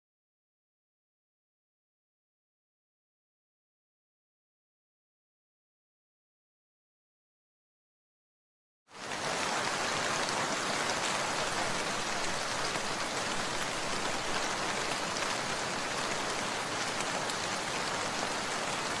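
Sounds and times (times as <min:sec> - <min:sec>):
rain hissing: 0:09.0 - 0:19.0.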